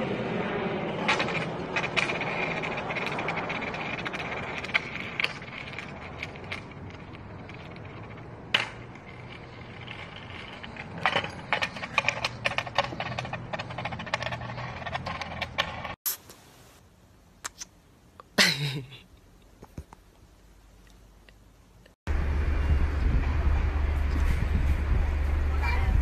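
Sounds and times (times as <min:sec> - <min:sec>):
skateboard wheels rolling on concrete: 0:00.0 - 0:16.0, 0:22.1 - 0:26.0
skateboard clicks and knocks: 0:00.8 - 0:16.0.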